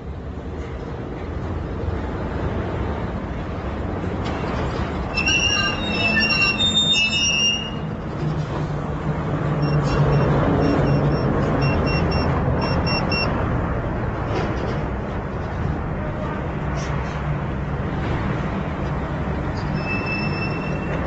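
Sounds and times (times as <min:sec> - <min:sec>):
street traffic: 0:00.0 - 0:21.0
pager beeping: 0:09.6 - 0:13.3.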